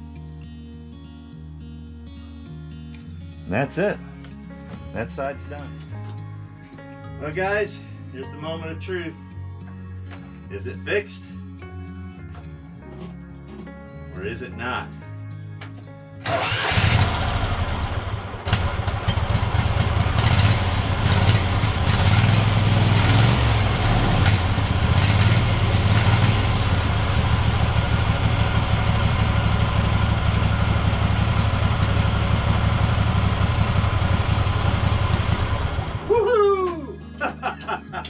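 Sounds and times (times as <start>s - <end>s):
lawn tractor engine starting and running: 16.2s - 36.1s.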